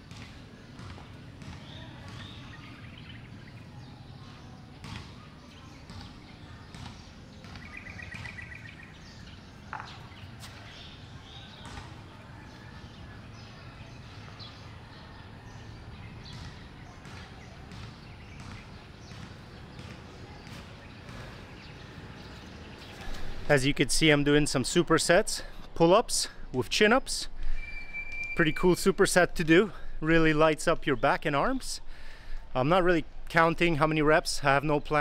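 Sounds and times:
birds calling: 0.0 - 24.7.

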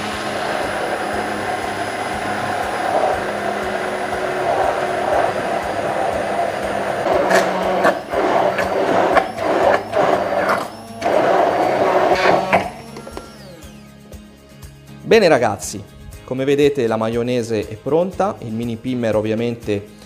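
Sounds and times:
immersion blender whirring: 0.0 - 14.2.

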